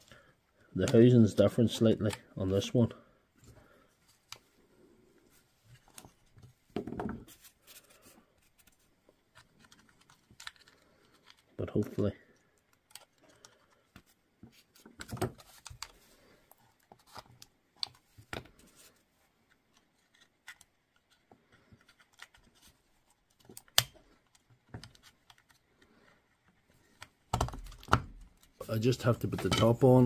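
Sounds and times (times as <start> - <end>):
plastic clicks and scrapes: 8.4 - 11.6, 12.6 - 18.6, 19.5 - 28.6.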